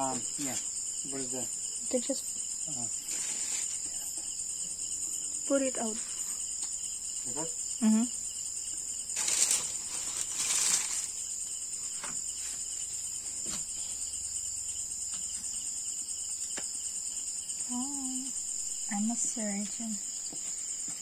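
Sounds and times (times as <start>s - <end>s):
crickets chirring: 0.0s - 21.0s
rustling: 2.9s - 4.1s, 9.0s - 14.1s.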